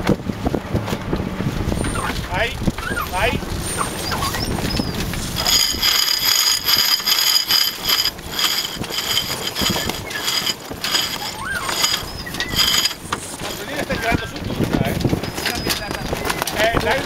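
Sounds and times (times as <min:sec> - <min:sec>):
winch ratcheting: 0:03.8 - 0:14.0.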